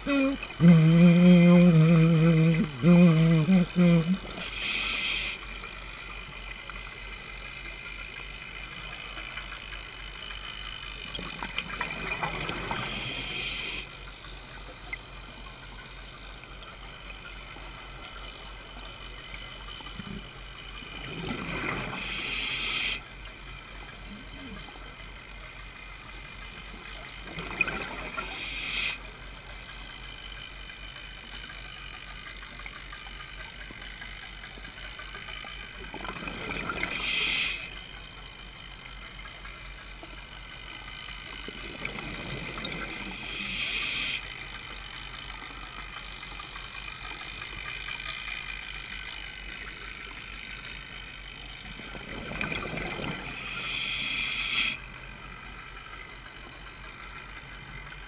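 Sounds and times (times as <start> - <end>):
steady low hum: 0.0 - 58.0
diver breathing through regulator: 0.3 - 5.4, 12.7 - 13.9, 21.8 - 23.1, 28.2 - 29.0, 36.8 - 37.8, 42.8 - 44.2, 53.1 - 54.9.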